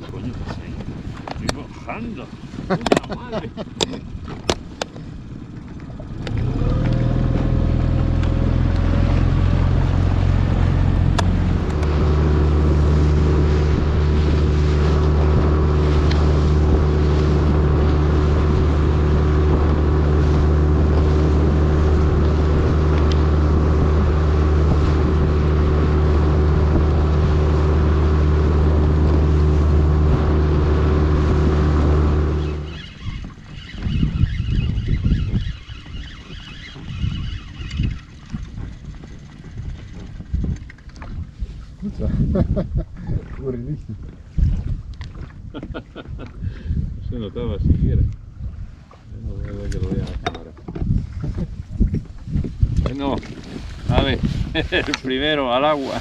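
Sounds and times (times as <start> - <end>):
outboard motor running: 0.0 - 56.0.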